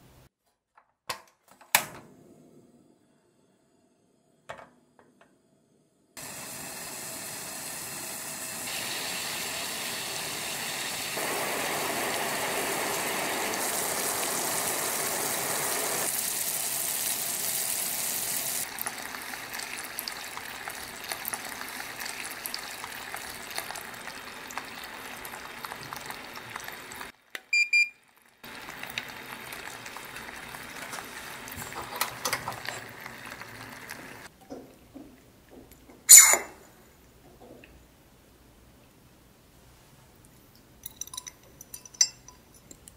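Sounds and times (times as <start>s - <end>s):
syrup hissing in pot: 6.2s - 27.1s
brief beep: 27.5s - 28.0s.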